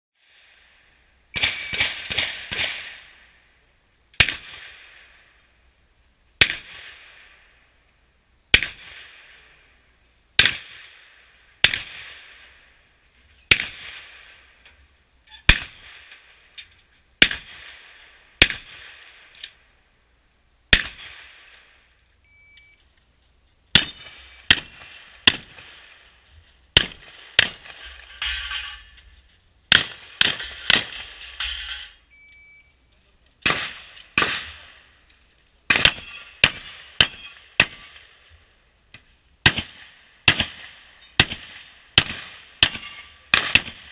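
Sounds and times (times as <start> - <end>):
shotgun shots: 1.3 - 3.2, 4.2 - 5.2, 6.4 - 7.4, 8.5 - 9.5, 10.4 - 12.5, 13.5 - 14.5, 15.5 - 16.4, 17.2 - 19.3, 20.7 - 21.8, 23.7 - 28.9, 29.7 - 31.8, 33.4 - 34.9, 35.7 - 38.2, 39.4 - 43.9
short electronic beep: 22.2 - 22.8, 32.1 - 32.8.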